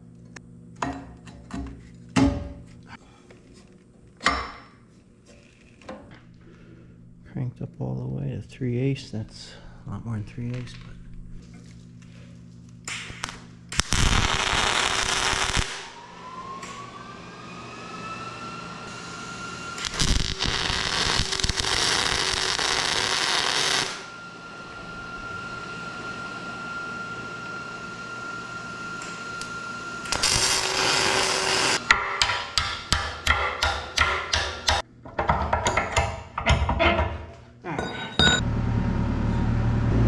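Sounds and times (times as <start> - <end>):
crackling arc welding: 12.9 - 16.0, 18.9 - 24.1, 29.0 - 31.8
thin steady whine: 13.6 - 31.8.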